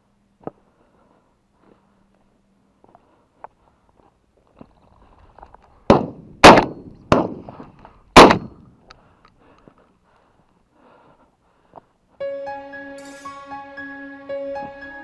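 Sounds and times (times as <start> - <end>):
shotgun shots with echo: 5.9 - 7.4, 8.2 - 8.6.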